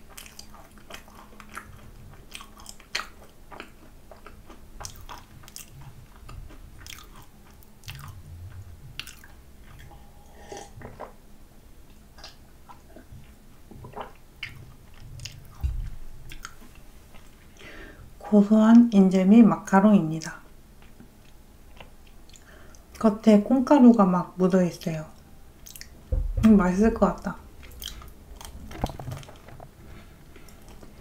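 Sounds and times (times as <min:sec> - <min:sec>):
crunchy chewing with mouth clicks: 0:00.0 - 0:11.2, 0:11.8 - 0:17.7, 0:20.2 - 0:23.1, 0:25.1 - 0:26.0, 0:27.6 - 0:31.0.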